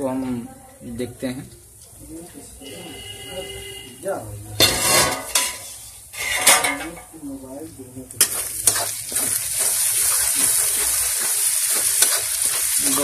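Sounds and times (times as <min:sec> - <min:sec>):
masala sizzling in oil: 0:00.0 - 0:13.0
spatula scraping metal pan: 0:04.6 - 0:06.8, 0:08.2 - 0:13.0
spatula clicking on pan: 0:10.4 - 0:13.0.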